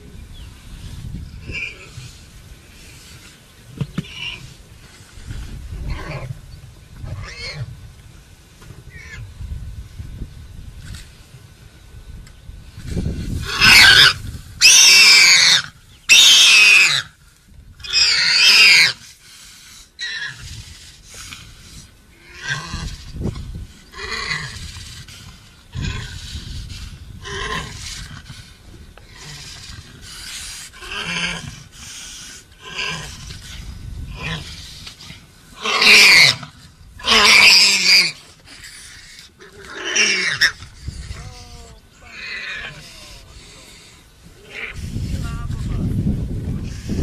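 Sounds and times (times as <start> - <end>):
loud animal cries: 13.4 - 17.1, 17.8 - 19.0, 35.6 - 43.2
lions growling: 20.0 - 45.1.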